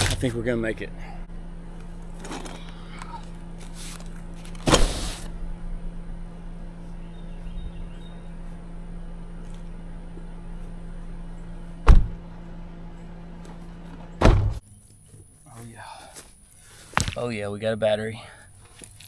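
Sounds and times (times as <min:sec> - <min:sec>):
steady low hum: 0:00.0 - 0:19.0
car door slamming: 0:11.8 - 0:12.2, 0:14.2 - 0:14.6.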